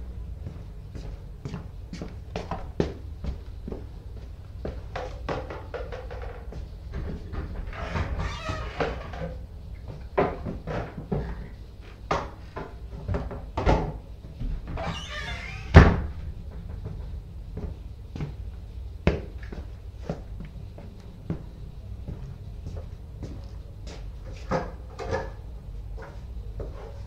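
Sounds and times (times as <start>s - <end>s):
cupboard doors opening and shutting: 6.9s - 9.4s, 14.6s - 16.2s
rustling and scraping: 22.2s - 27.0s.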